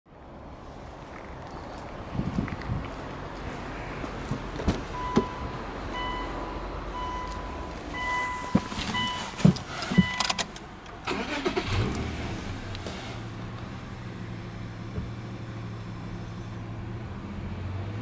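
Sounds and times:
car warning chime beeping: 0:04.9 - 0:10.4.

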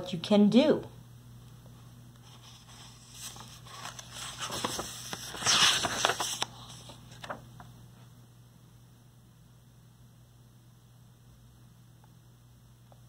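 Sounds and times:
book page turning: 0:02.2 - 0:07.7.

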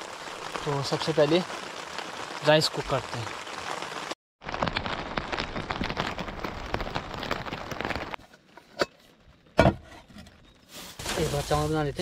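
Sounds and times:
heavy rain pattering on a tent: 0:00.0 - 0:08.2, 0:11.0 - 0:12.0.

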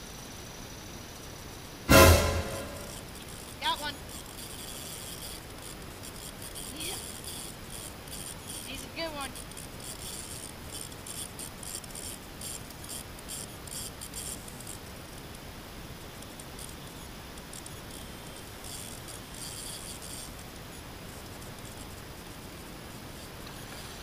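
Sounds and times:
fishing reel clicking: 0:03.2 - 0:15.4, 0:16.1 - 0:20.4.

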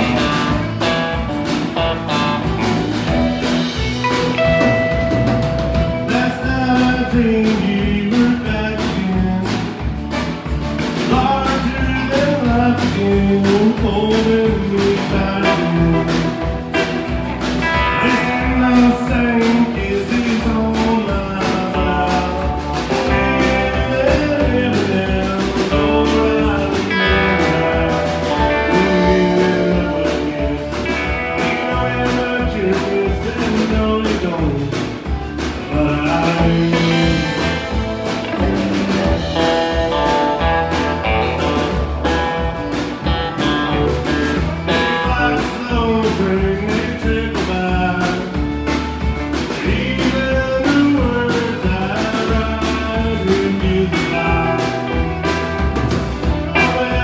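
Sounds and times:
acoustic guitar: 0:00.0 - 0:57.0
drums keeping a steady beat: 0:00.0 - 0:57.0
man singing: 0:03.9 - 0:10.0, 0:10.8 - 0:55.4, 0:56.2 - 0:57.0.

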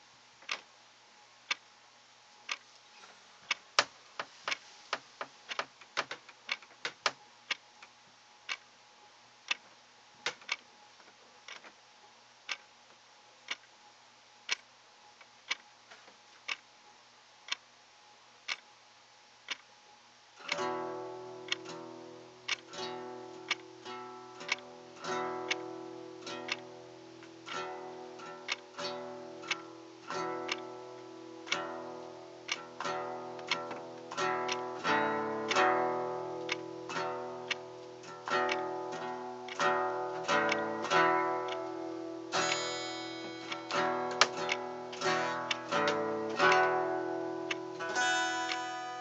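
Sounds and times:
acoustic guitar plucked notes: 0:20.5 - 0:49.0
sharp ticks: 0:24.4 - 0:24.7, 0:26.4 - 0:30.7, 0:31.5 - 0:49.0.

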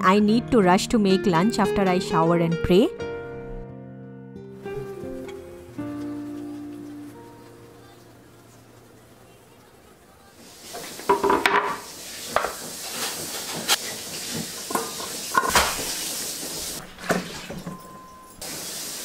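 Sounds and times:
running water hiss: 0:04.6 - 0:19.0
washing gourds in water: 0:10.3 - 0:17.8
metal bowl clanking and ringing: 0:17.4 - 0:18.4.

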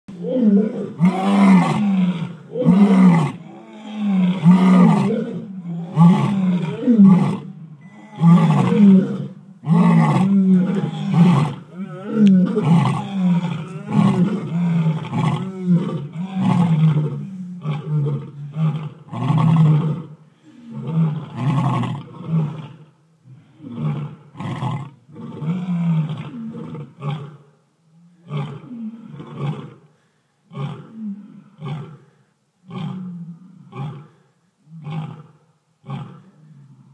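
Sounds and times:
lions roaring: 0:00.2 - 0:20.1.

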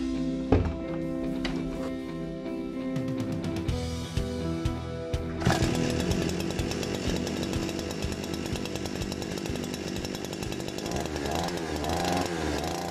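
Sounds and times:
brush cutter engine running: 0:05.4 - 0:12.9.

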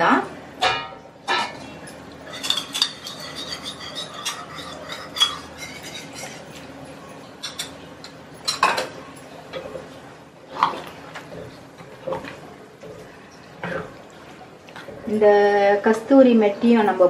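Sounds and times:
spoon scraping a ceramic bowl: 0:02.2 - 0:06.7.

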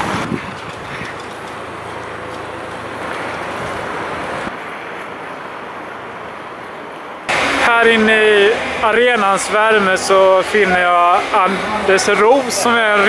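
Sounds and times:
wind blowing across microphone: 0:00.0 - 0:01.9.

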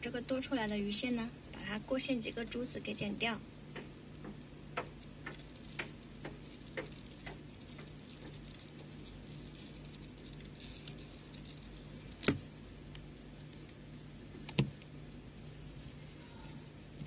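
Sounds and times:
faint ticks of beads: 0:03.7 - 0:17.0.

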